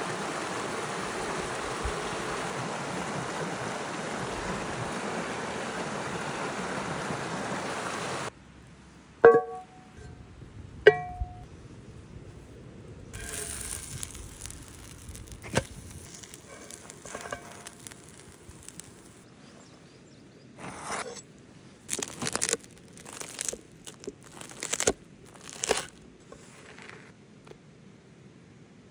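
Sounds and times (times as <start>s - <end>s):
frying pan hiss: 13.2s - 19.2s
knife crunching through crisp bread: 21.8s - 27.0s.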